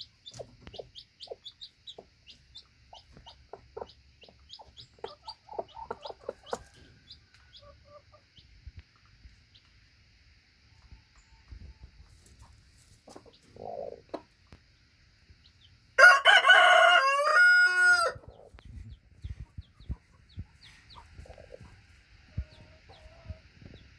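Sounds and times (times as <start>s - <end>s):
soft cluck: 10.7s - 14.7s, 18.4s - 23.9s
rooster crowing: 16.0s - 18.2s.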